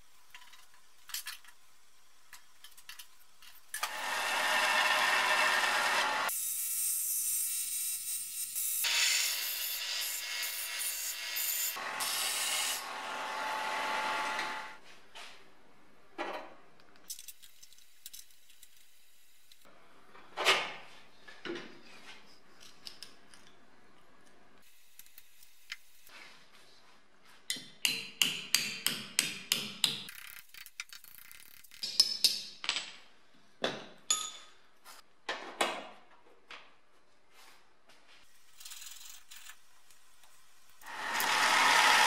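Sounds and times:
belt sander grinding steel: 3.8 - 6.3, 40.8 - 42.0
hammer strikes on steel: 27.5 - 30.1.

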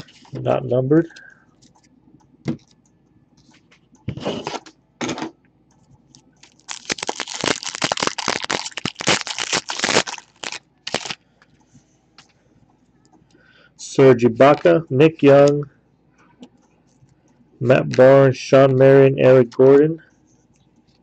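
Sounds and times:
cards rustling: 6.4 - 11.2
wrapper crinkling as torn open: 6.4 - 11.2.

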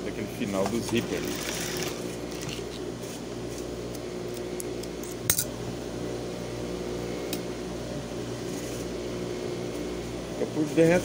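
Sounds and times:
motor hum: 0.0 - 11.0.

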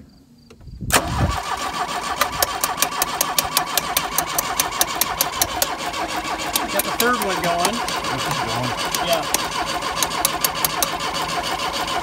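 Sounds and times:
starter cranking engine: 0.9 - 12.0
sharp ticks: 2.2 - 5.8, 6.5 - 11.0.

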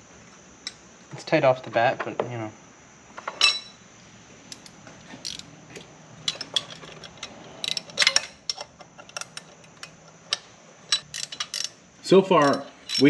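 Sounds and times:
hand tools and metal parts clinking: 3.2 - 3.8, 4.5 - 13.0.

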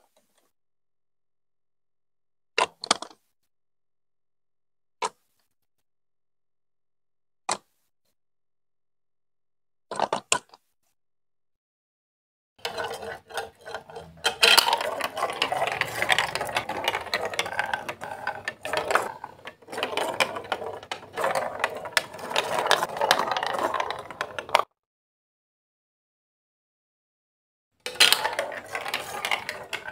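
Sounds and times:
plastic marble rattling down chutes: 12.6 - 24.6, 27.8 - 29.9
plastic building blocks clicking: 12.6 - 24.7, 27.8 - 29.9.

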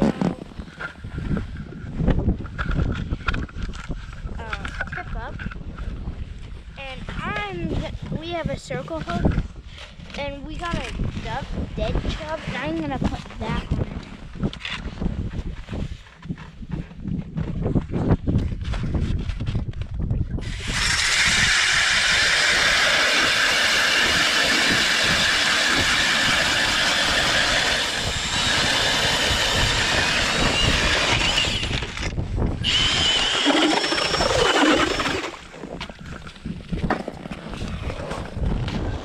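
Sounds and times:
powered ice auger grinding: 20.4 - 36.4.

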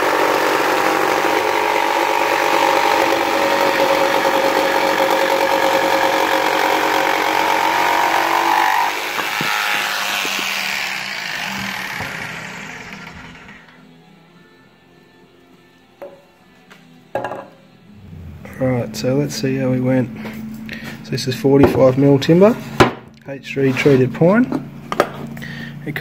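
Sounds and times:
jigsaw cutting wood: 0.0 - 13.8.

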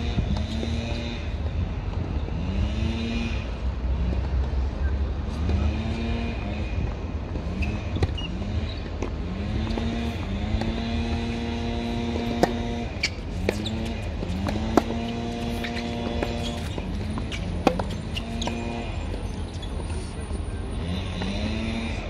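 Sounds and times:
engine droning: 0.0 - 22.0
tennis balls struck by rackets: 5.3 - 20.1.

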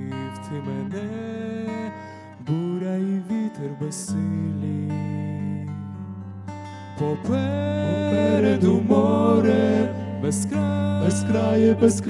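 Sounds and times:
acoustic guitar: 0.0 - 12.0
voices singing in harmony: 7.8 - 12.0.

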